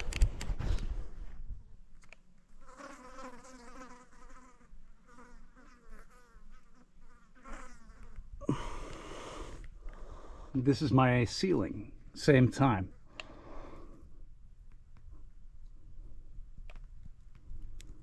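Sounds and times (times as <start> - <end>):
insect buzzing: 2.6 - 9.6.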